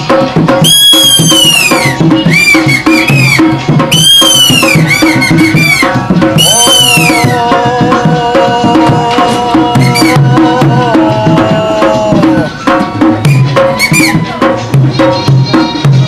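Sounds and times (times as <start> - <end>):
hand drum rhythm: 0.0 - 16.0
shrill gliding reed whistle: 0.6 - 7.4, 12.3 - 14.4.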